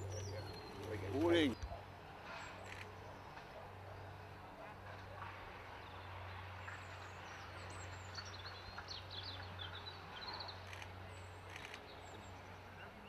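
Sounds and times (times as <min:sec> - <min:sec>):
small birds chirping: 0:00.0 - 0:03.2, 0:05.8 - 0:13.0.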